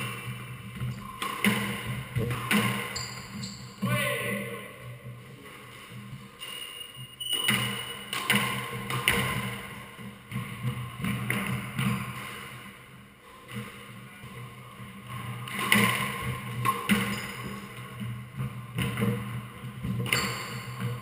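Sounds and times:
squash ball hitting rackets and walls: 0:00.0 - 0:03.8, 0:06.4 - 0:13.9, 0:14.9 - 0:21.0.

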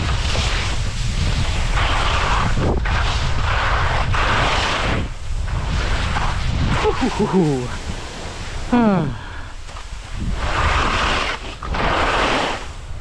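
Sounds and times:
skis sliding through snow: 0:00.0 - 0:13.0
wind buffeting microphone: 0:00.0 - 0:13.0.

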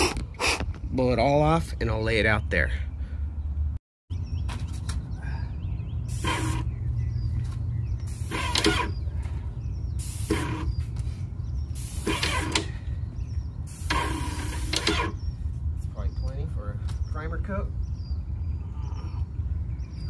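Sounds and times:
paint spray gun hissing: 0:06.1 - 0:06.7, 0:08.1 - 0:08.9, 0:10.0 - 0:10.8, 0:11.8 - 0:12.6, 0:13.7 - 0:15.1.

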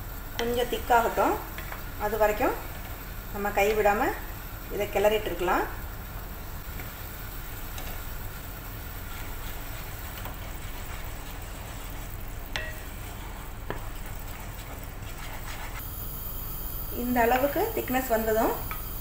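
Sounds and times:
steady sizzle: 0:00.0 - 0:19.0
spoon stirring bubbling liquid: 0:00.4 - 0:03.9, 0:06.6 - 0:16.0.

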